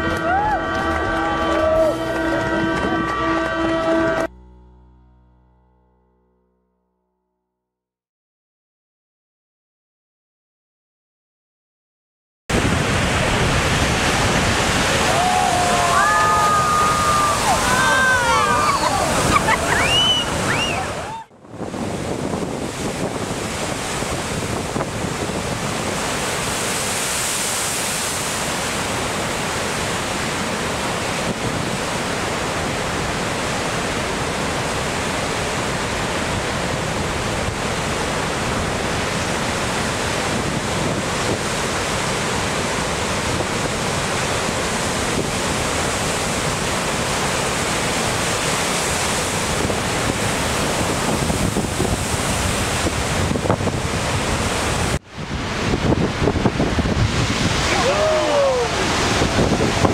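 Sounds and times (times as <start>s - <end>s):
waves crashing on rocks: 12.5s - 59.9s
wind noise on microphone: 12.5s - 59.9s.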